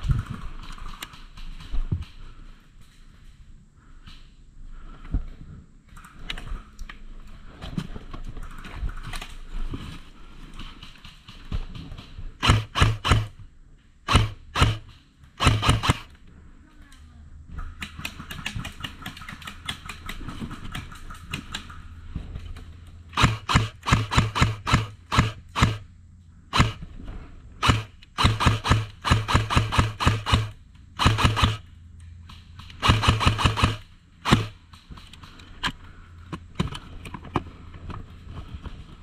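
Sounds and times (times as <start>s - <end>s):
airsoft rifle rapid shots: 12.4s - 13.4s, 14.1s - 16.1s, 17.6s - 21.8s, 23.1s - 25.9s, 26.5s - 26.9s, 27.6s - 31.7s, 32.6s - 35.0s.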